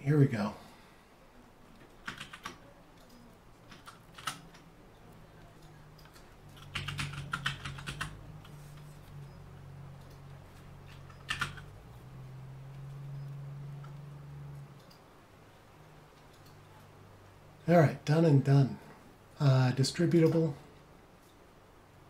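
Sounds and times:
typing on computer keyboard: 0:01.9 - 0:04.7, 0:05.6 - 0:08.6, 0:10.9 - 0:11.7.

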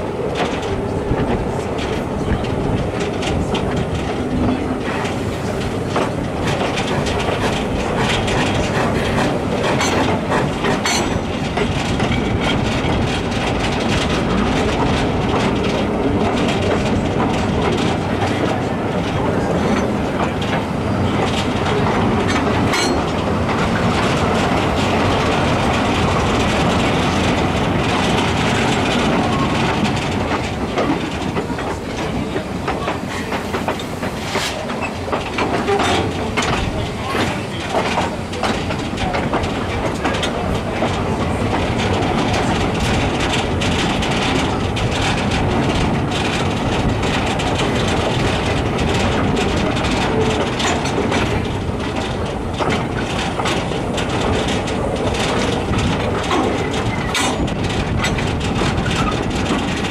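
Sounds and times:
steam train rumble: 0:00.0 - 0:59.9
wheels clacking over rail joints: 0:00.0 - 0:59.9.

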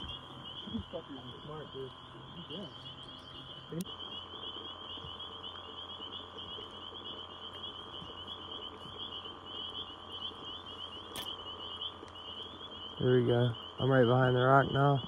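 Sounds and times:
frogs trilling: 0:00.0 - 0:15.0
sharp click: 0:11.1 - 0:11.4.

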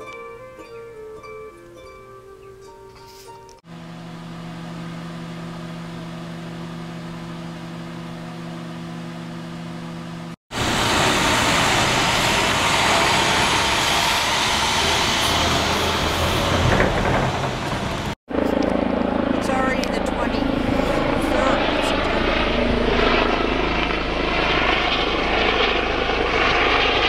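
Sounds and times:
microwave oven humming: 0:03.7 - 0:10.4
rough rushing engine noise: 0:03.7 - 0:27.0.

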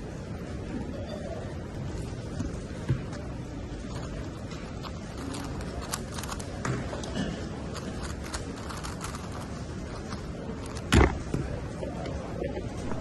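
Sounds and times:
plastic puzzle clicking: 0:05.2 - 0:07.1, 0:07.7 - 0:10.9.

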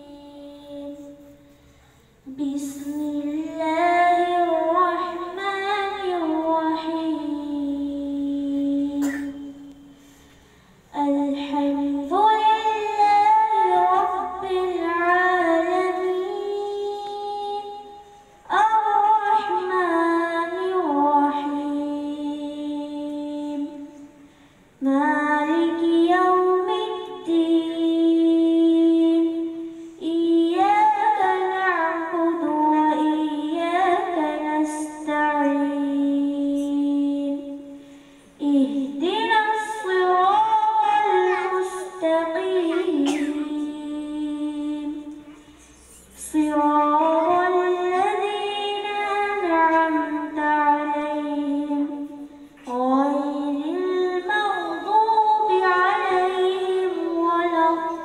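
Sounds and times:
girl chanting: 0:02.3 - 0:09.5, 0:11.0 - 0:24.1, 0:38.6 - 0:58.0.

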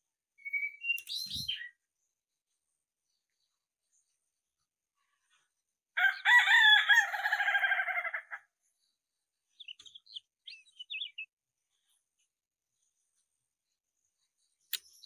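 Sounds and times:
rooster crowing: 0:06.0 - 0:08.4.

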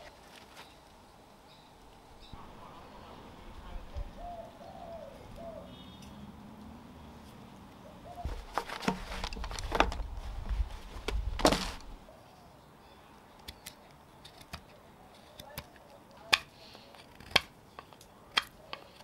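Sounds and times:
camera handling rumble: 0:08.2 - 0:12.0.

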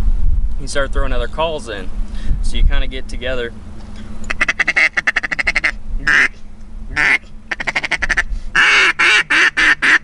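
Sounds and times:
duck call quacks and chatter: 0:04.3 - 0:10.0.

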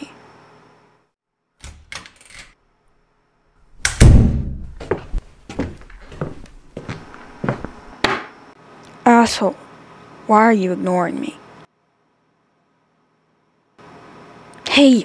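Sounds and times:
heavy thump: 0:04.0 - 0:05.2
sharp knocks: 0:08.0 - 0:08.4.

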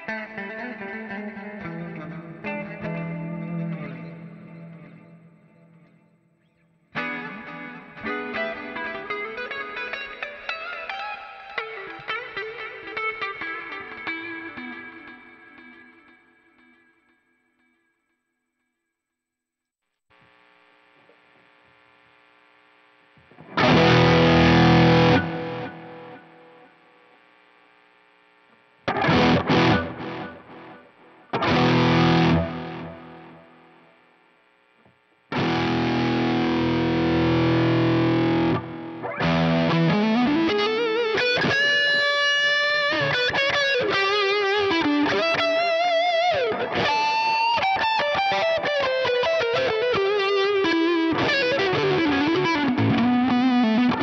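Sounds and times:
faint amp hum: 0:00.0 - 0:15.6, 0:19.2 - 0:54.0
distorted electric guitar: 0:00.0 - 0:17.2, 0:20.1 - 0:54.0.

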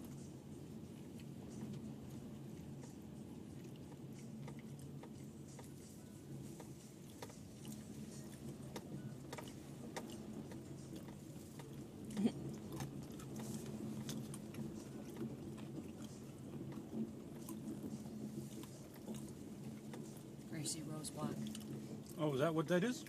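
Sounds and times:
car engine hum: 0:00.0 - 0:23.0.

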